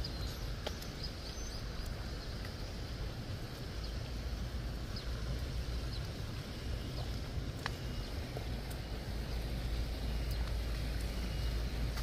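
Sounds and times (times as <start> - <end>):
faint high bird chirps: 0.0 - 2.4
road traffic rumble: 0.0 - 12.0.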